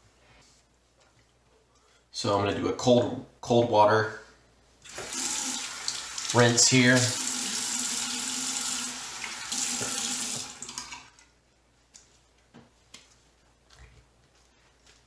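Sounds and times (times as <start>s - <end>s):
sink tap running: 4.9s - 11.1s.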